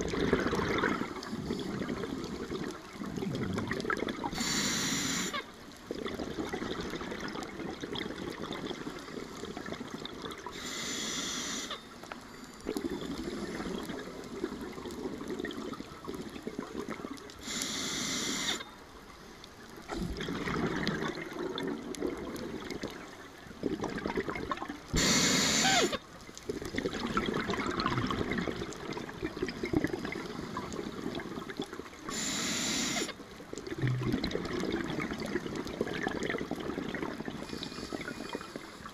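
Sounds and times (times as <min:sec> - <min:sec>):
exhaled air bubbling: 0:00.0 - 0:11.8, 0:12.6 - 0:18.8, 0:19.6 - 0:38.9
regulator inhalation hiss: 0:04.3 - 0:05.4, 0:10.5 - 0:11.8, 0:17.4 - 0:18.7, 0:25.0 - 0:26.0, 0:32.1 - 0:33.2.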